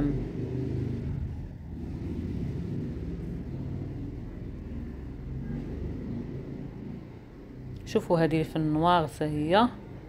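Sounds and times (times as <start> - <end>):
shop background rumble: 0.0 - 10.0.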